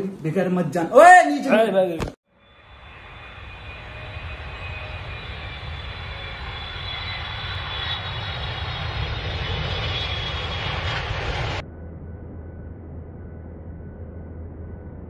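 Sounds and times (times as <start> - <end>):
faint high whine: 2.3 - 15.0
jet engine drone: 2.3 - 15.0.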